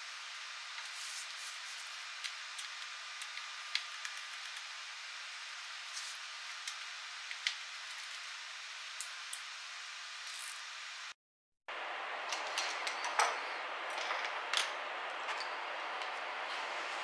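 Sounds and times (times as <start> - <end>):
steady hiss: 0.0 - 11.2.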